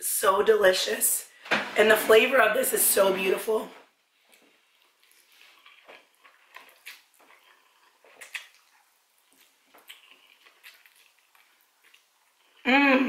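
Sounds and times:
person eating noodles: 4.3 - 12.7.

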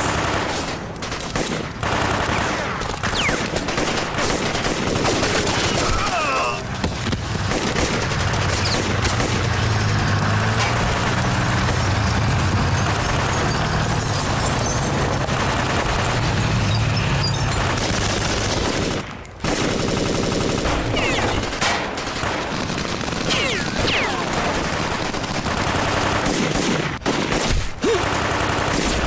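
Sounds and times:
automatic rifle fire: 0.0 - 6.0, 7.4 - 9.5, 17.9 - 29.0.

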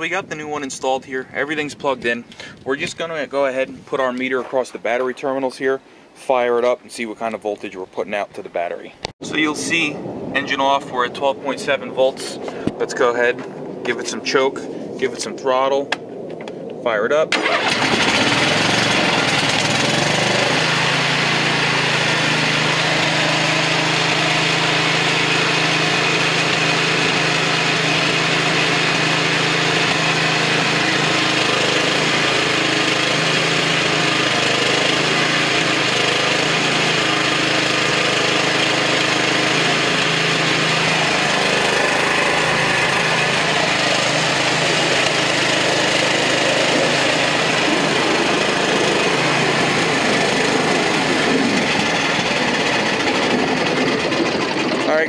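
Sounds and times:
riding mower engine running: 17.3 - 55.0.

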